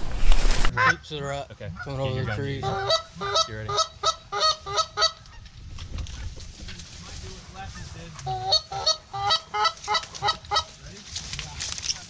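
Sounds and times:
goose honking: 1.8 - 5.4, 7.6 - 10.8.

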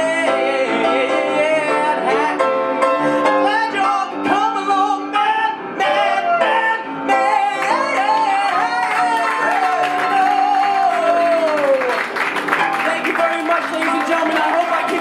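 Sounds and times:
person singing: 0.0 - 12.0.

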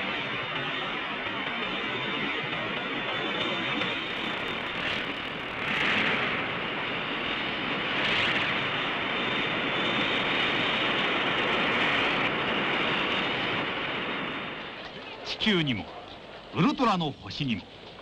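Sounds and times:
dense rushing rumble: 3.9 - 6.8.

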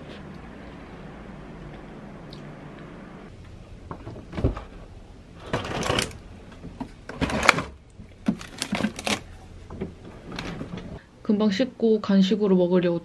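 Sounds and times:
frozen food bags rustling: 7.1 - 9.4.

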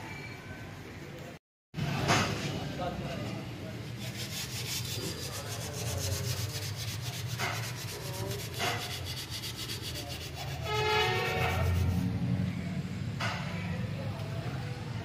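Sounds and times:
rapid rasping strokes: 3.8 - 12.1
horn-like tone: 10.6 - 12.1.

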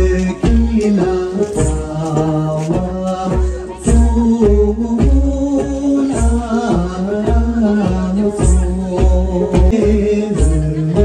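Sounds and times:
person singing a melody: 0.0 - 11.0
steady regular beat: 0.0 - 11.0.

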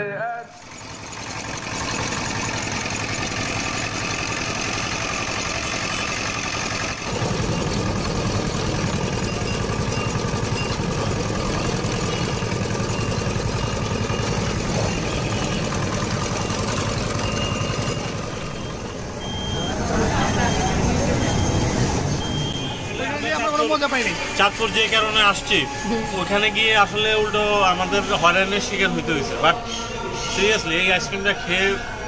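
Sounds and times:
juice machine rollers crushing cane: 0.6 - 18.7.

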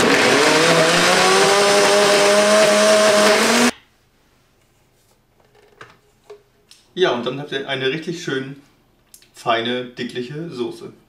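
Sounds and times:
blender motor whining: 0.0 - 3.7.

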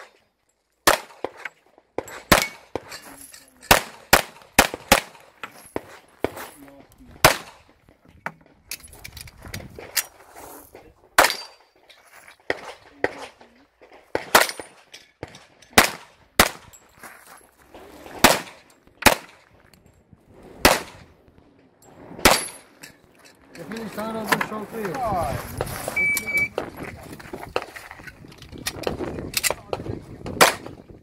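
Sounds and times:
pistol shots with echo: 2.2 - 2.8, 3.7 - 5.2, 7.2 - 7.6, 15.8 - 16.6, 18.2 - 19.4, 20.6 - 21.0, 30.4 - 30.7.

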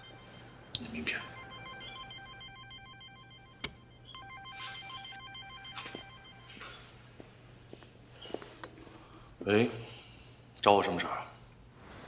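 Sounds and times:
mobile phone ringtone: 0.0 - 6.9.

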